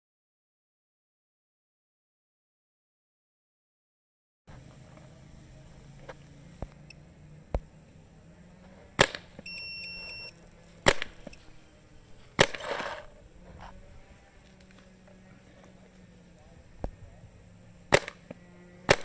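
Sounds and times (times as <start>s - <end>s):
paintball marker shots: 9.0s - 9.4s, 10.8s - 11.4s, 12.3s - 13.1s, 17.9s - 19.0s
short electronic beep: 9.4s - 10.4s.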